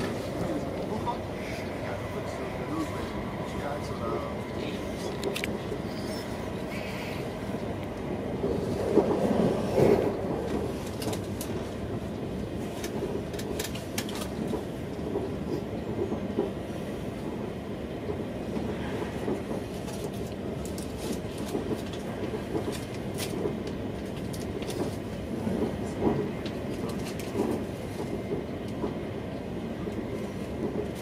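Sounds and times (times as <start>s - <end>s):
train wheels rumbling on track: 0.0s - 31.0s.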